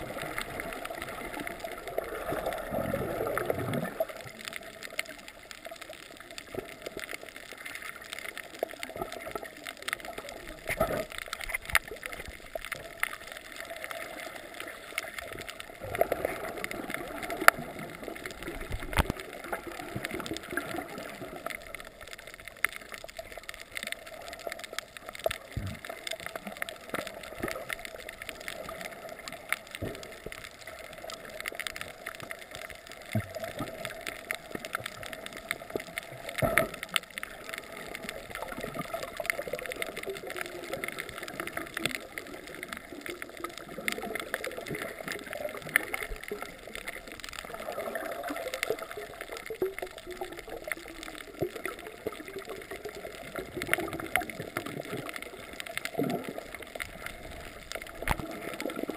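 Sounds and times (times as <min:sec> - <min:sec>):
clicks and crackles: 0:00.0 - 0:58.9
water gurgling: 0:00.0 - 0:58.9.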